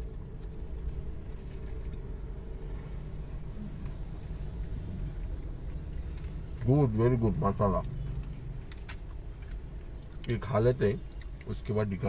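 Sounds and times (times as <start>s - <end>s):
chewing fried snack: 0.0s - 6.8s, 7.7s - 12.0s
car cabin hum: 0.0s - 12.0s.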